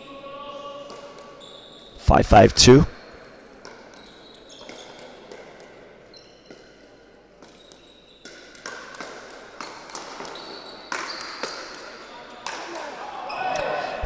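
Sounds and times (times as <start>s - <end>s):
paddles hitting plastic ball: 8.2s - 11.8s.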